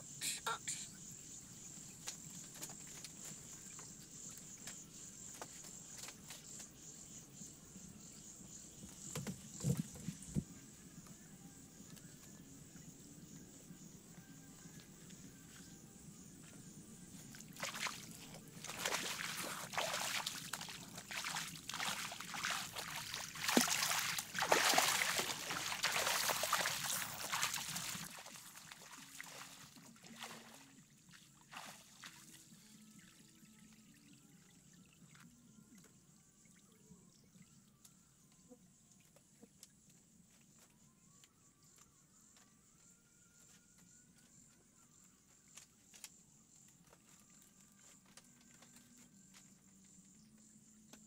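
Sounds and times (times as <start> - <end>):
water splashing and trickling: 17.1 - 37.8.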